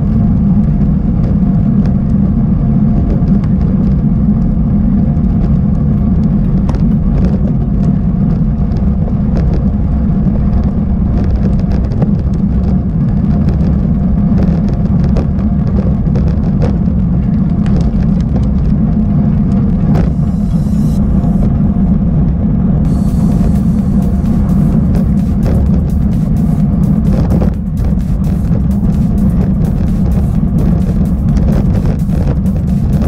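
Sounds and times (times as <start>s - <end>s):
bike riding rumble: 0.0s - 33.0s
bike clicks and rattles: 10.6s - 20.0s.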